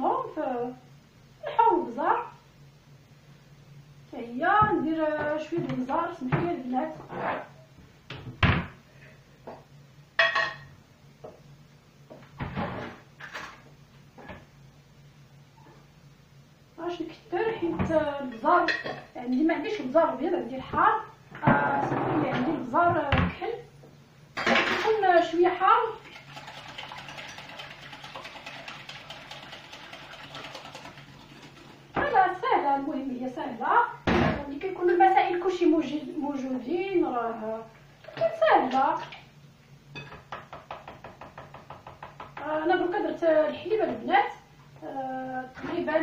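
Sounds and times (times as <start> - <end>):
eggs beaten in glass bowl: 26.0 - 32.0
cabinet door knocking: 40.3 - 42.4.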